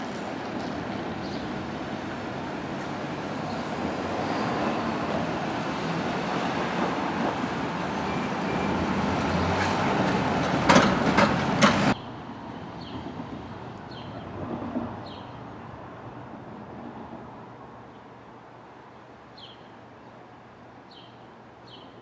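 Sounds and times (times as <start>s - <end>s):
road traffic passing: 0.0s - 21.7s
truck knocking over rail tracks: 9.6s - 12.0s.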